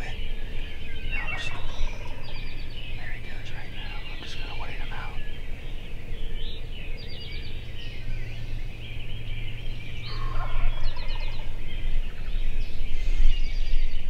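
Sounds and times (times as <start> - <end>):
songbirds chirping: 0.0 - 14.0
turkey gobbling: 1.1 - 2.3, 10.1 - 11.6.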